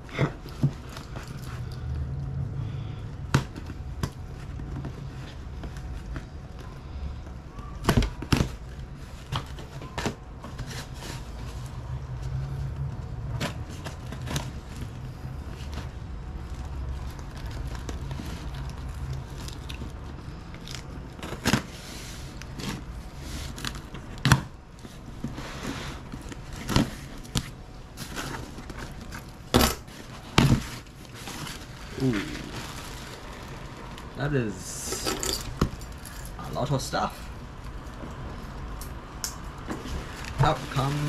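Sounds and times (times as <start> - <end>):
low hum: 0.0 - 25.4
tape and cardboard crackling: 3.2 - 41.0.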